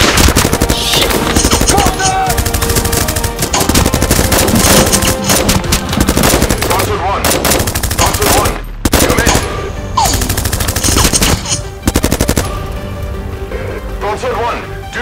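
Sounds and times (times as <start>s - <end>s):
rapid automatic gunfire: 0.0s - 9.4s, 10.0s - 11.2s, 11.8s - 12.5s.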